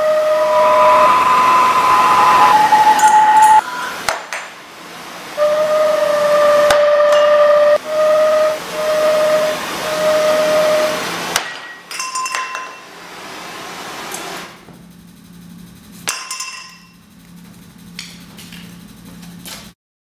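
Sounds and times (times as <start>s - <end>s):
singing tube hollow tone: 0.0s - 4.1s, 5.4s - 11.0s.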